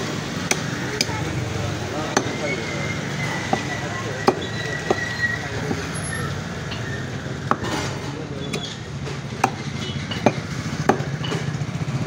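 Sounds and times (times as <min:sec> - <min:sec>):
cleaver chopping on wooden block: 0:00.4 - 0:01.2, 0:03.5 - 0:05.1, 0:09.4 - 0:11.4.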